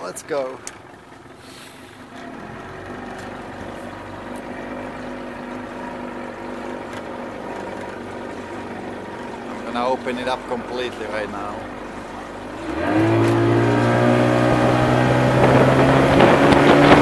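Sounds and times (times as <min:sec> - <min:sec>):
outboard motor running: 0:00.0 - 0:17.0.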